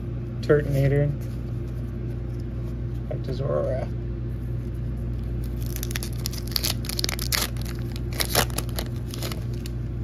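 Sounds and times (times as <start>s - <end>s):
foil wrapper tearing and crinkling: 5.2s - 9.8s.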